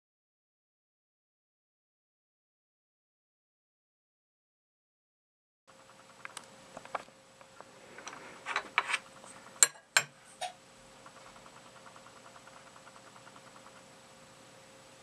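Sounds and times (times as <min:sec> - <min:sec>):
faint steady hum: 0:05.7 - 0:15.0
fast faint ticking: 0:11.0 - 0:14.8.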